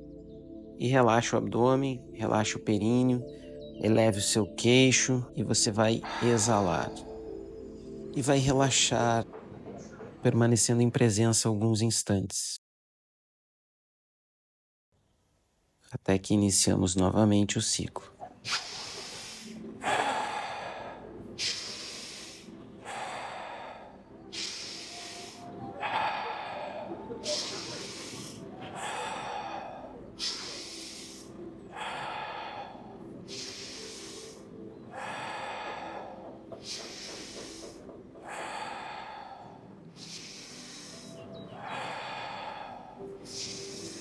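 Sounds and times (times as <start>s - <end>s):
person breathing forcefully: 6.0s - 7.3s, 18.5s - 44.0s.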